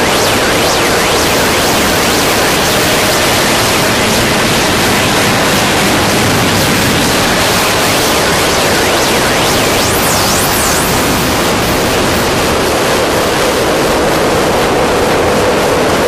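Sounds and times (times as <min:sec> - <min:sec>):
harsh noise music static hiss: 0:00.0 - 0:16.0.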